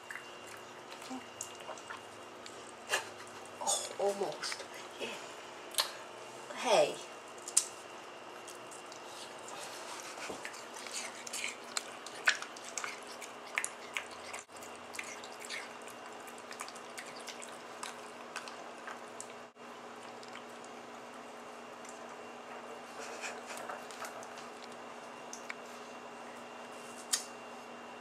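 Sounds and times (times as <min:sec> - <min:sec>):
dog licking watermelon: 0:08.4 - 0:19.4.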